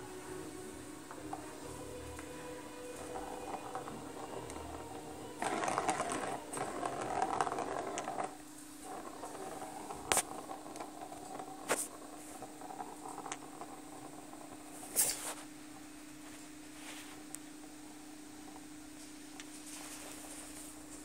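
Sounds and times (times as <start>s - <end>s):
plastic ball rattling in track: 1.1s - 15.2s.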